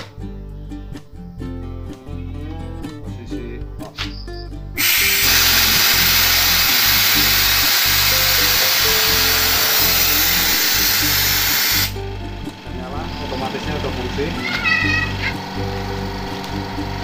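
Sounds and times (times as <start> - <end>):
background music with bass: 0.0 - 17.0
compressed air hissing: 4.8 - 12.0.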